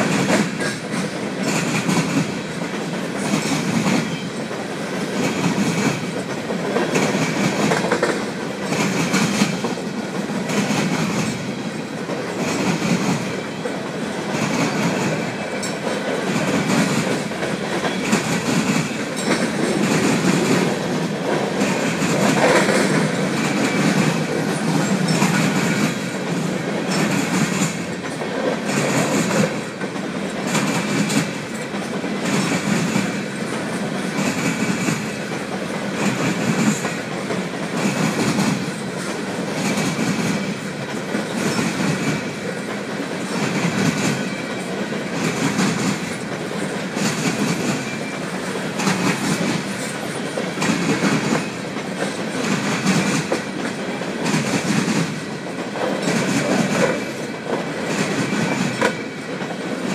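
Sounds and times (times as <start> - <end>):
train wheels rumbling on rails: 0.0 - 59.9
wheels clickety-clack on rail joints: 0.0 - 59.9.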